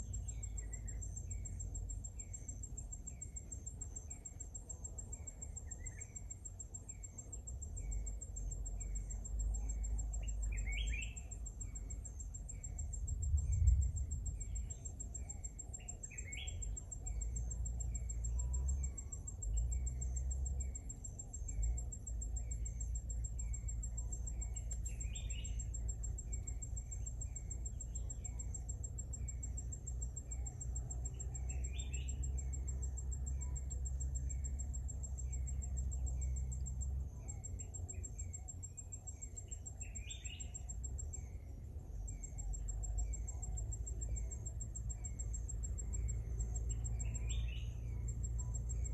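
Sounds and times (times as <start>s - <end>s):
bird chirping: 0.0s - 48.9s
high-pitched insect trill: 0.0s - 48.9s
low rumble: 12.5s - 15.5s.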